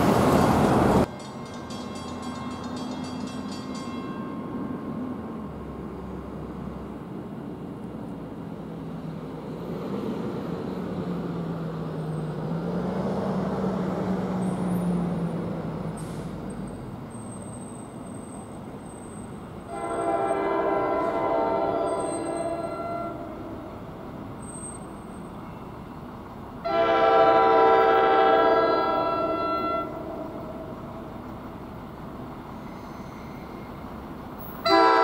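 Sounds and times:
train rumbling: 0:00.0 - 0:35.0
train horn chord: 0:19.7 - 0:23.7, 0:26.6 - 0:30.7, 0:34.6 - 0:35.0.

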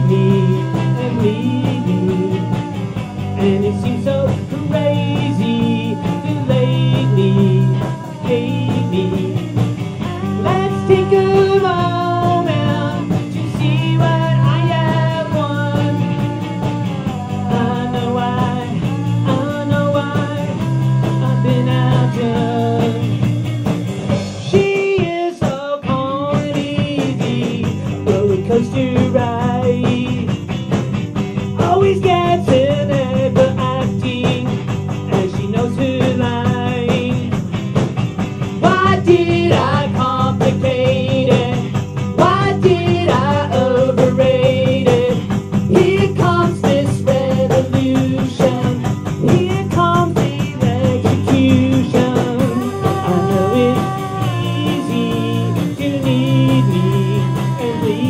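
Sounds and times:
bending melody line: 0:00.0 - 0:23.9, 0:50.3 - 0:58.0
plucked electric bass guitar: 0:00.0 - 0:24.5, 0:26.7 - 0:58.0
rock band music: 0:00.0 - 0:58.0.

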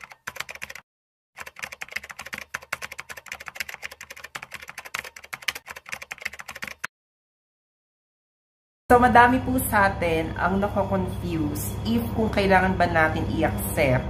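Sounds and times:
rapid keyboard typing: 0:00.0 - 0:00.8, 0:01.4 - 0:06.9.

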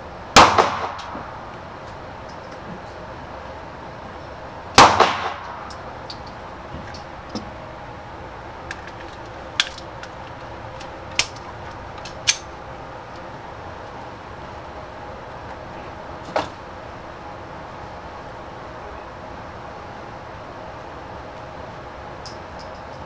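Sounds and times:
pistol shot indoors: 0:00.4 - 0:01.2, 0:04.8 - 0:05.7.

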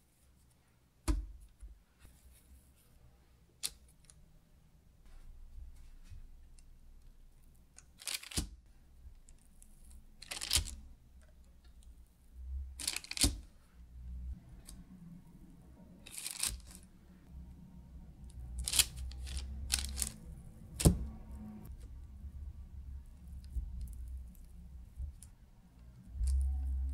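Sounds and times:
parchment paper crinkling: 0:07.5 - 0:11.6, 0:12.7 - 0:13.8, 0:16.0 - 0:17.2, 0:18.3 - 0:22.0, 0:23.0 - 0:26.9.

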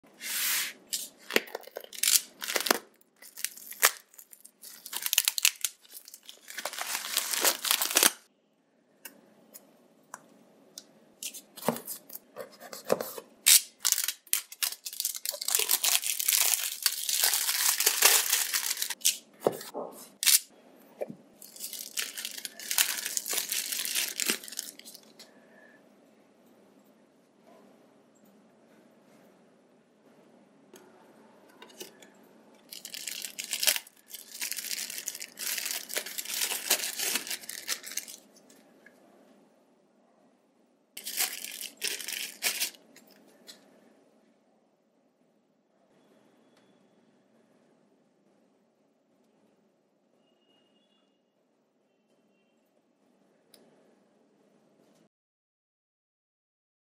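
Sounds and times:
plastic wrap tearing and crinkling: 0:00.6 - 0:08.3, 0:13.4 - 0:20.5, 0:21.4 - 0:25.2, 0:32.7 - 0:38.3, 0:41.0 - 0:42.9.

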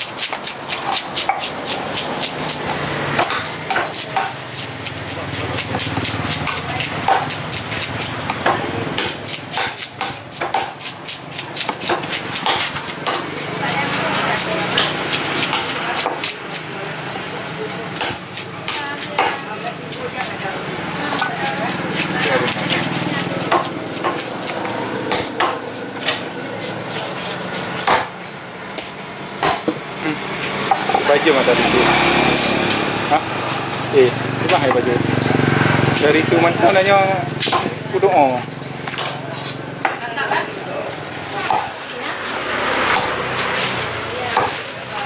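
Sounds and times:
cleaver chopping on wooden block: 0:00.0 - 0:13.5, 0:14.2 - 0:16.7, 0:17.9 - 0:20.4, 0:21.1 - 0:26.8, 0:27.6 - 0:29.9, 0:37.3 - 0:37.8, 0:38.8 - 0:39.2, 0:41.3 - 0:41.8, 0:42.4 - 0:43.6, 0:44.2 - 0:44.8
steady background noise: 0:00.0 - 0:45.0
cleaver knocking on wood: 0:08.2 - 0:10.9, 0:37.4 - 0:37.8.

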